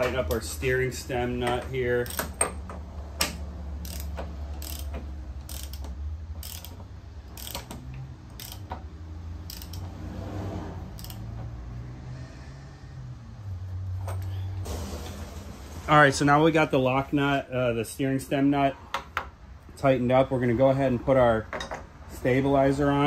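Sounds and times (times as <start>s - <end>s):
hand ratchet clicking: 1.4s - 10.0s, 11.0s - 11.4s.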